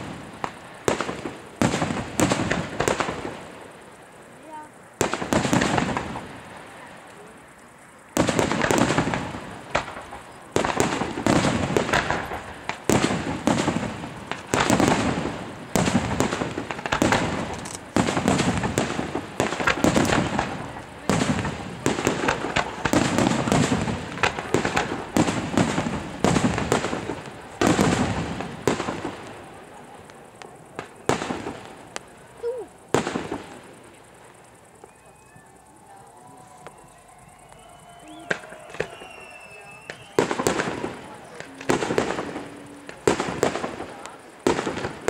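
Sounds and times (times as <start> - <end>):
firework crackling: 0.0 - 45.0
firework shells bursting: 8.1 - 35.0, 36.6 - 45.0.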